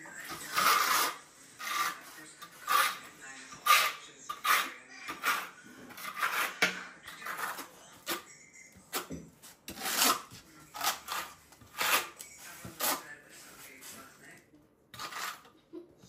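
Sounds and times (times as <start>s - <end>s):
trowel scraping mortar on tile: 0.0s - 14.2s, 14.9s - 15.6s.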